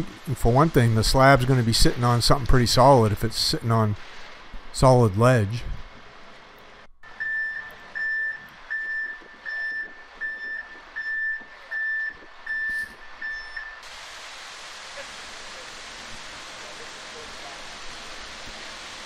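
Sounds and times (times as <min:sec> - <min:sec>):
steady rushing hiss: 0:00.0 - 0:06.9, 0:13.8 - 0:19.0
truck reversing alarm beeping: 0:07.0 - 0:13.8.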